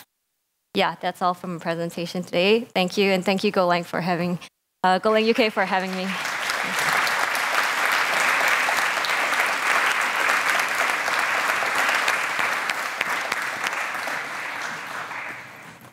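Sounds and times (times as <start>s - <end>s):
audience applauding: 5.4s - 15.9s.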